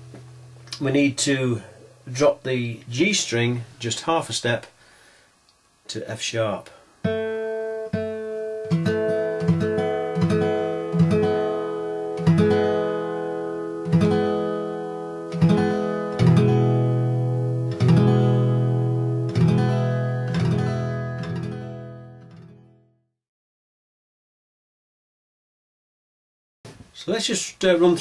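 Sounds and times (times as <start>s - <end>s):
acoustic guitar strumming: 0.0s - 2.0s, 7.0s - 22.9s.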